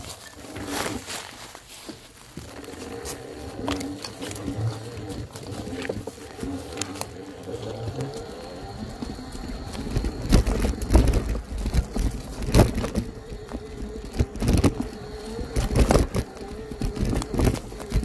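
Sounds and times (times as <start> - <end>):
faint wavering hum: 0.0 - 18.0
steady rumble: 2.1 - 18.0
bike knocks and rattles on bumps: 3.6 - 18.0.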